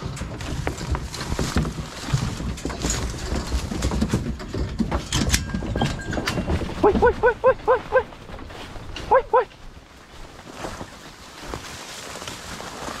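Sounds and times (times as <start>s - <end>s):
metal box clicks and knocks: 0.0s - 6.7s.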